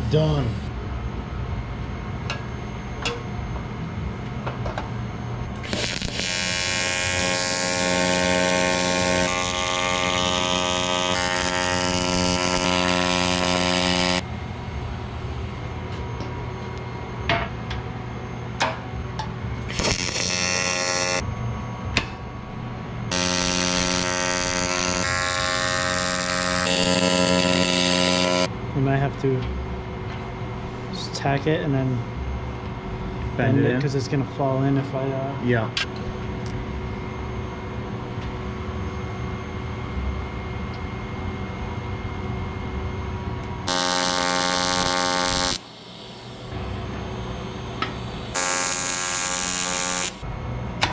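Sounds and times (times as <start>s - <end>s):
welding arc buzzing: 5.4s - 21.3s, 21.9s - 28.5s, 43.0s - 50.9s.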